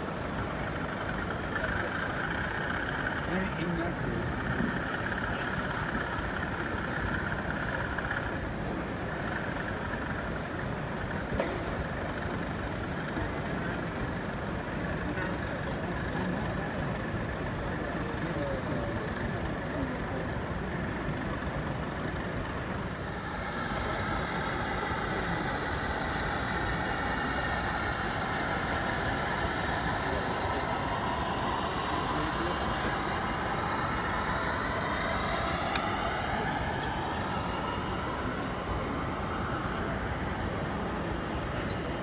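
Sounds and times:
crowd hubbub: 0.0s - 42.0s
model trains running: 0.0s - 42.0s
thin high whine: 17.6s - 42.0s.

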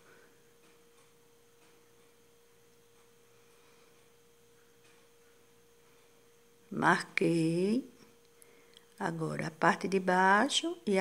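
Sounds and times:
faint steady hum: 0.0s - 11.0s
woman's voice: 6.7s - 8.0s, 9.0s - 11.0s.

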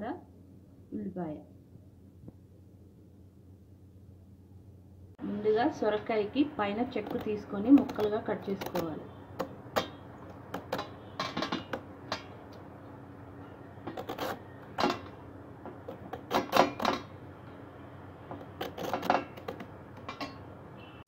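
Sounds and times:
vegetable peeler scraping gourd: 6.6s - 11.0s, 13.8s - 17.1s, 18.3s - 20.1s.

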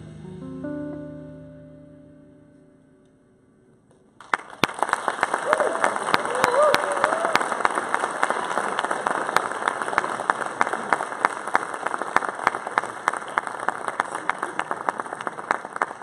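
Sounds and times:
audience applauding: 4.2s - 16.0s.

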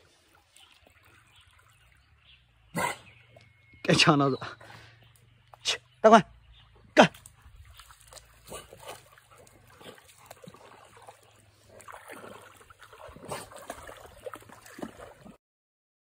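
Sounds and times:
dog splashing through water: 6.6s - 15.4s.

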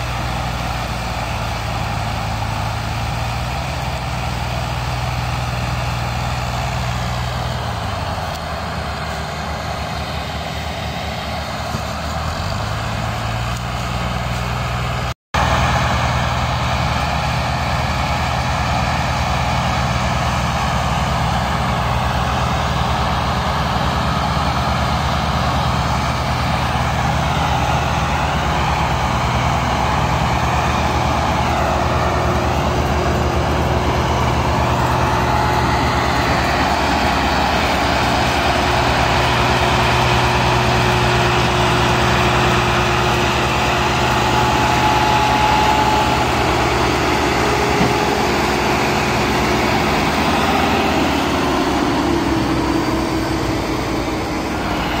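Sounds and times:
tractor engines droning under load: 0.0s - 55.0s.

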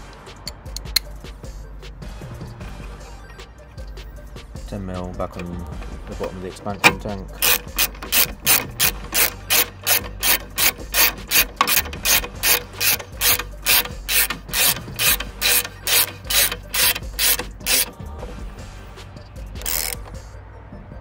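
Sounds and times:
socket ratchet clicking: 0.4s - 1.2s, 5.4s - 18.1s, 19.5s - 20.3s.

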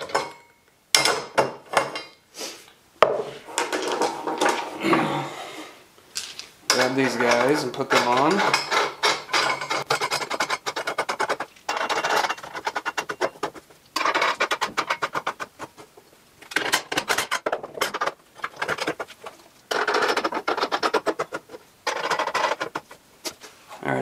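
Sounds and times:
nuts spinning on threaded bolts: 6.7s - 15.7s, 16.5s - 22.9s.

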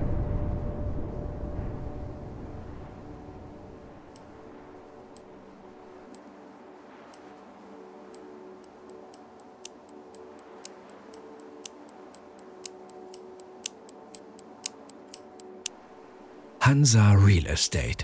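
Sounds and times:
faint music drone: 0.0s - 18.0s
clock ticking: 8.1s - 15.7s.

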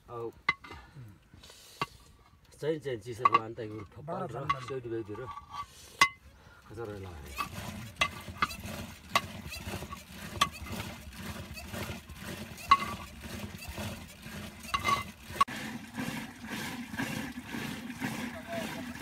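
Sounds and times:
churning stick swishing in pot: 7.0s - 19.0s.

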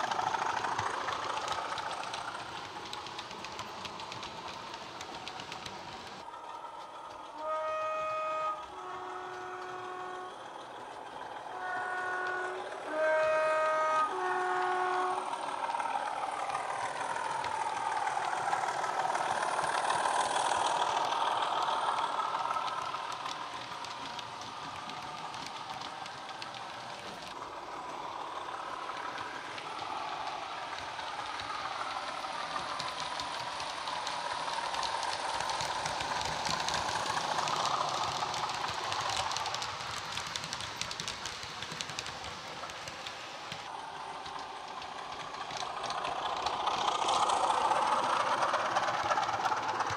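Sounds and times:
two-tone horn: 7.3s - 10.4s, 11.5s - 15.3s.

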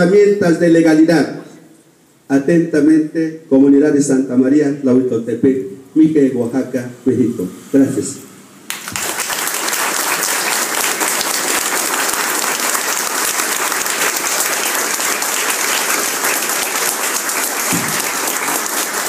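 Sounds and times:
audience applauding: 8.7s - 19.0s.

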